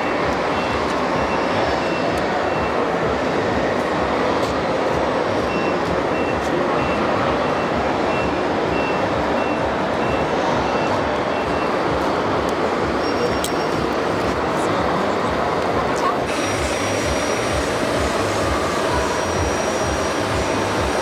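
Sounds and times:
loud vehicle noise: 0.0s - 21.0s
reversing beeper: 5.4s - 11.8s.

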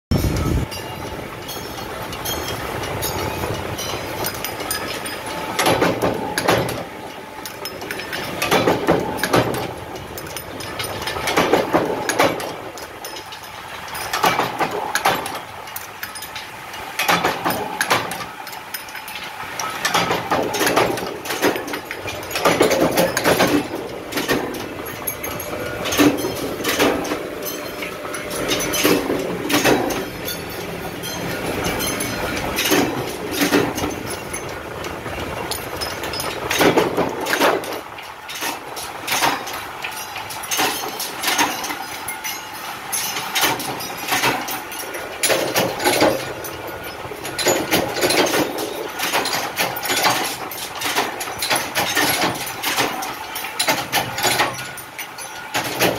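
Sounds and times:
press clanking and knocking: 0.1s - 55.9s
machine drone: 17.0s - 50.0s.

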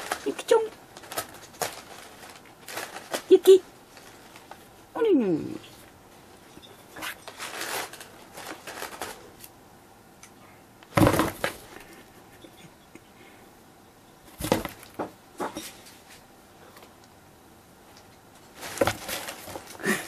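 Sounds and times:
cardboard box knocking and scraping: 11.0s - 11.6s, 18.7s - 19.6s.

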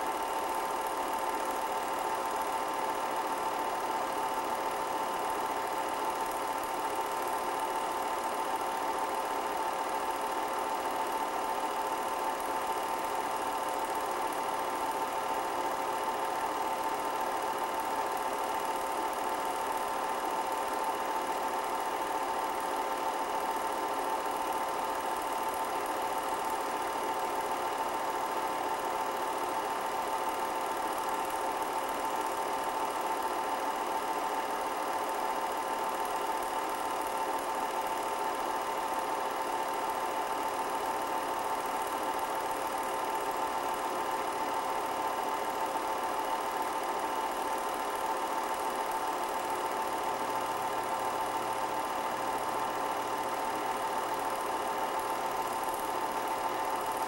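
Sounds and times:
film projector whirring: 0.0s - 57.0s.

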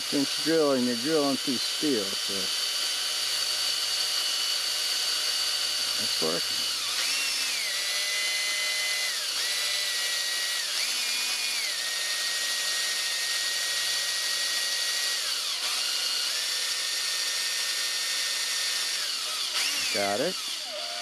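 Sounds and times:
power drill whining: 0.0s - 21.0s.

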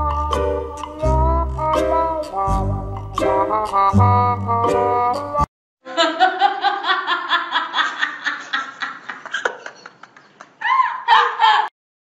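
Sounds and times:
person laughing: 5.9s - 11.7s.

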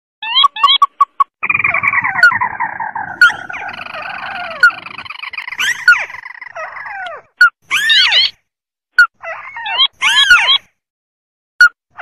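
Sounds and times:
crakes calling: 1.4s - 7.1s.

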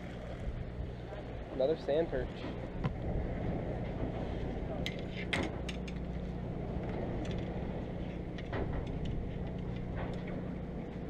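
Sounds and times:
boat machinery humming: 0.0s - 11.0s.

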